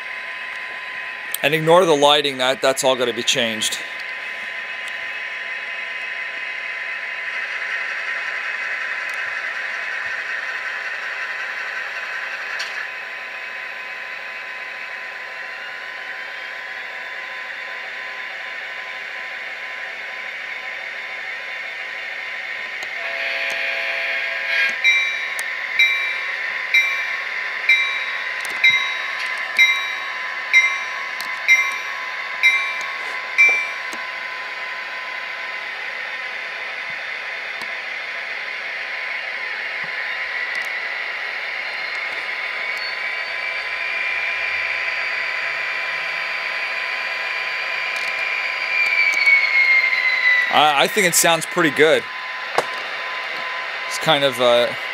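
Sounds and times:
locomotive horn: 23.0s - 24.8s
locomotive bell ringing: 24.8s - 33.9s.

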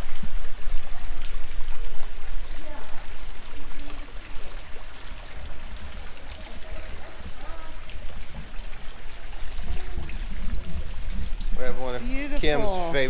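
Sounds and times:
fountain splashing and trickling: 0.0s - 13.0s.

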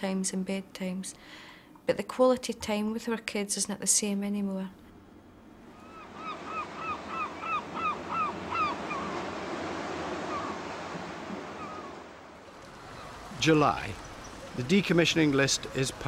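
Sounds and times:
surf washing: 5.6s - 16.0s
short downward-curving animal calls: 5.8s - 9.2s.

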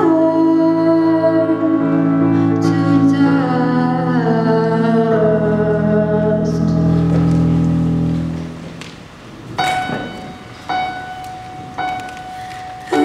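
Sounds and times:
girl singing into microphone: 0.0s - 7.1s, 12.2s - 13.0s
electric keyboard chords: 0.0s - 13.0s.

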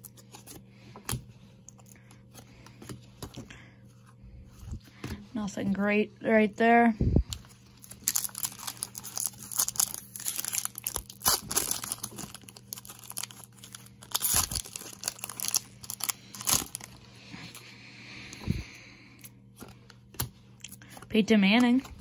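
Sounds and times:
foil wrapper crinkling: 7.3s - 17.4s
foil wrapper tearing: 7.8s - 17.0s.

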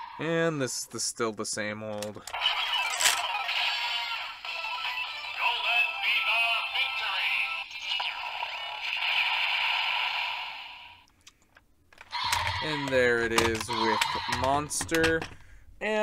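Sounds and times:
processed voice: 2.0s - 9.0s, 12.2s - 16.0s.

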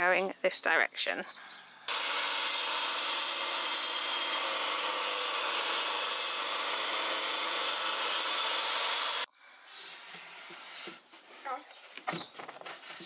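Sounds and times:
mitre saw cutting wood: 1.9s - 9.3s.

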